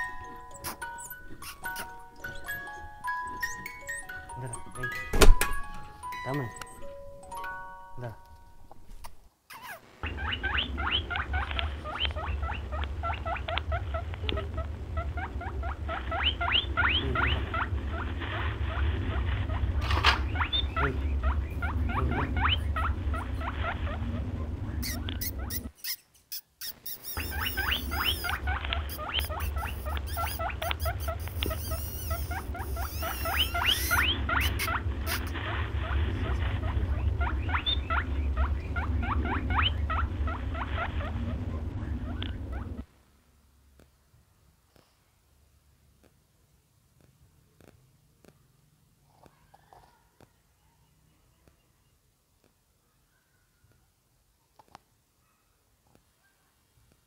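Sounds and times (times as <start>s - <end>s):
rising high squeaking chirps: 0.0s - 8.2s, 9.5s - 42.9s
steady low hum: 9.8s - 25.8s, 27.2s - 44.6s.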